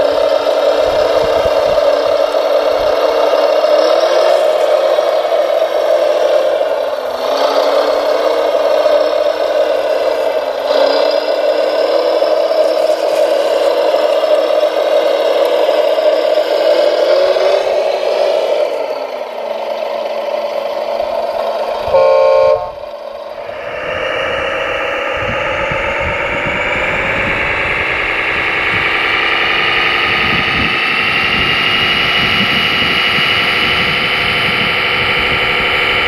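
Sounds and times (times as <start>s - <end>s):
motor and hydraulic whine: 0.0s - 36.0s
horn beep: 21.9s - 22.8s.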